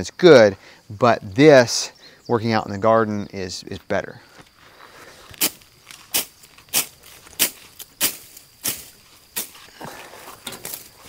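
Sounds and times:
sickle swishing through grass: 0:05.1 - 0:11.0.

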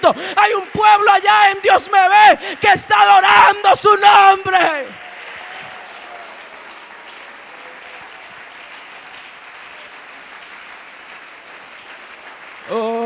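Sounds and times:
congregation applauding: 0:00.0 - 0:13.0.

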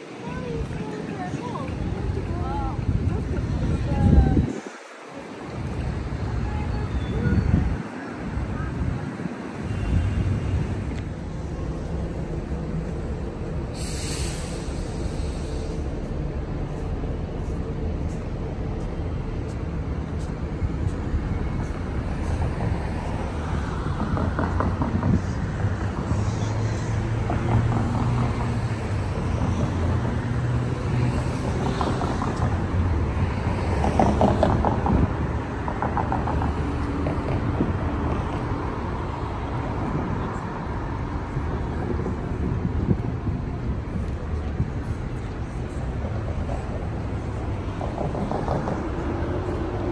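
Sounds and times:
cars idling and passing: 0:00.0 - 0:49.9
short hiss: 0:13.7 - 0:15.8.

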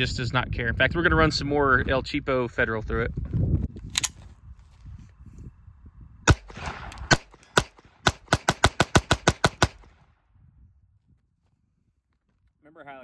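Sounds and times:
pistol shots: 0:06.3 - 0:10.0.

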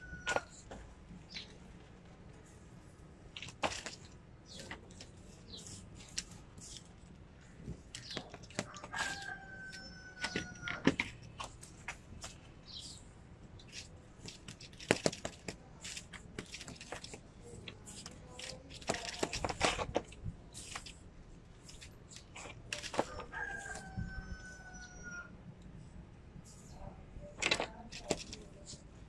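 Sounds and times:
rooster crowing: 0:00.0 - 0:00.5, 0:08.6 - 0:10.8, 0:23.0 - 0:25.3.

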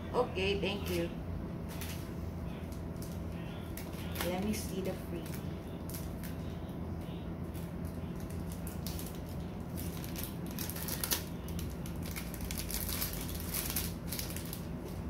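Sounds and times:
plastic bag crinkling: 0:02.7 - 0:06.5, 0:07.5 - 0:15.0.

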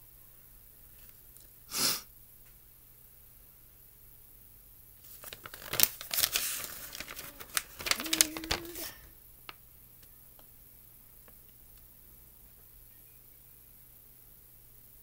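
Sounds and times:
paper crinkling and rustling: 0:05.0 - 0:09.1.

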